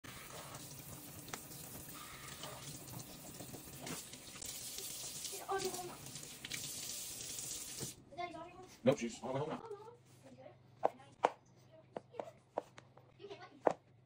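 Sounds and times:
faucet running: 0.0 - 8.0
water splashing in metal colander: 0.1 - 7.9.

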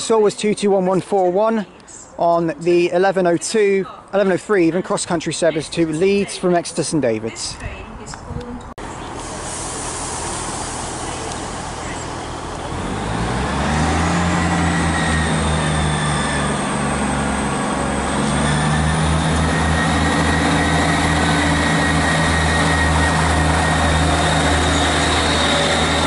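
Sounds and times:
diesel train engines droning: 7.5 - 26.0
high whine: 13.4 - 26.0.

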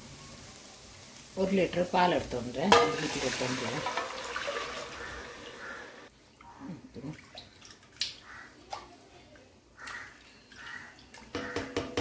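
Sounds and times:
milk pouring into a pan: 3.0 - 5.7.

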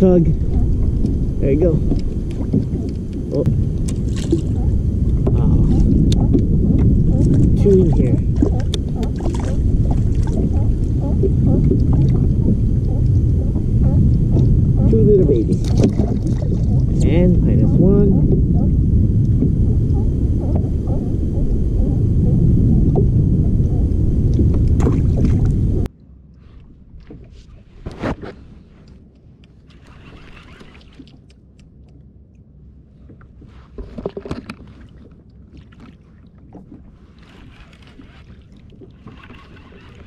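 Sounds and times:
wind buffeting microphone: 0.0 - 25.9
wind and water: 0.0 - 40.0.

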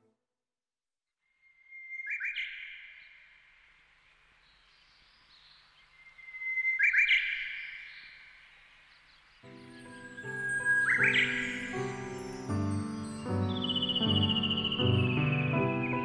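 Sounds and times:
bird-like whistle and chirp: 1.4 - 3.2, 4.4 - 12.7, 13.3 - 16.0.

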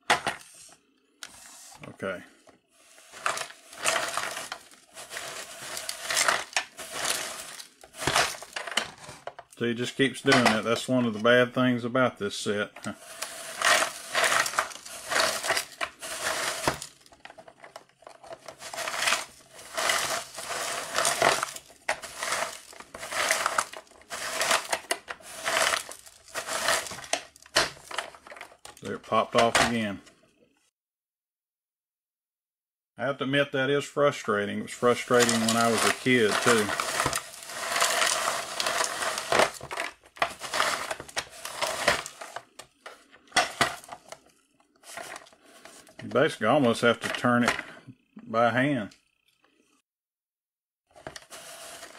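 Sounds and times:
plastic gears grinding ice cream: 2.8 - 9.6, 10.2 - 10.9, 12.8 - 29.9, 34.7 - 47.6, 50.9 - 51.9.

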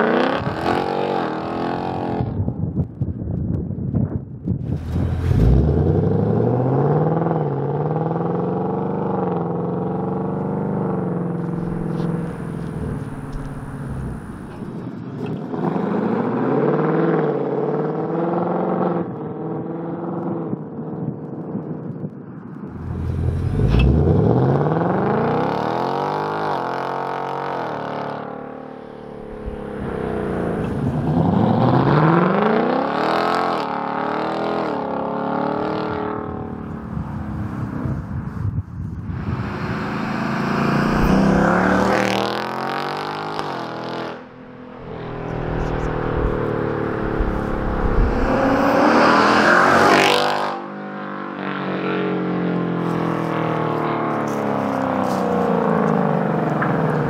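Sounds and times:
car engine revving: 4.7 - 14.8, 22.7 - 35.9, 39.1 - 51.0.

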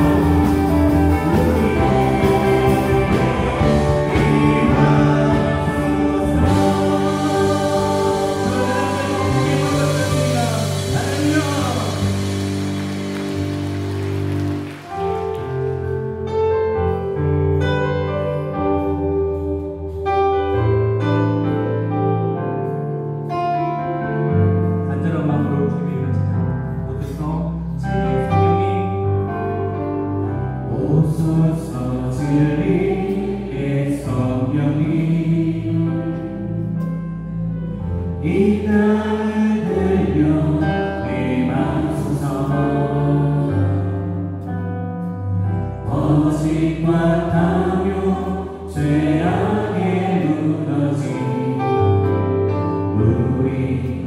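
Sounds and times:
group of voices singing: 0.0 - 14.2, 30.7 - 36.8, 38.2 - 44.3, 45.8 - 52.1, 53.0 - 54.0
band playing worship song: 0.0 - 54.0.

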